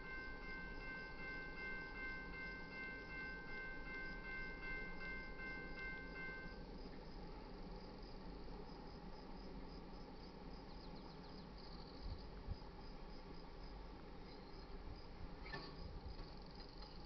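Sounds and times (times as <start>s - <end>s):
insects chirping: 0.0s - 17.0s
low background rumble: 0.0s - 17.0s.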